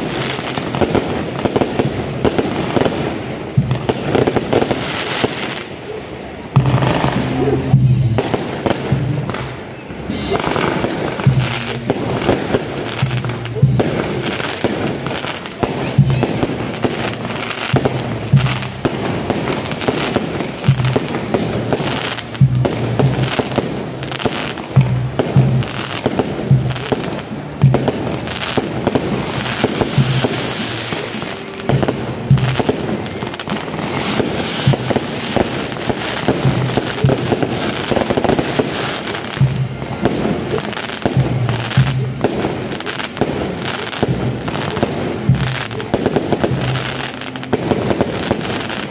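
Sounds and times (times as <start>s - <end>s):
fireworks cracking and banging: 0.0s - 48.9s
music with low drum pulse: 10.4s - 48.8s.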